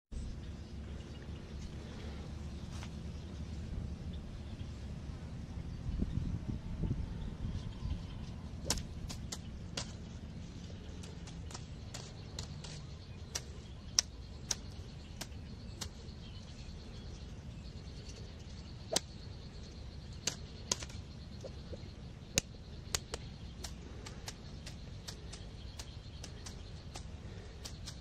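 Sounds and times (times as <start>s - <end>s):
low outdoor rumble: 0.1s - 28.0s
sharp clicks: 11.0s - 16.0s, 22.3s - 28.0s.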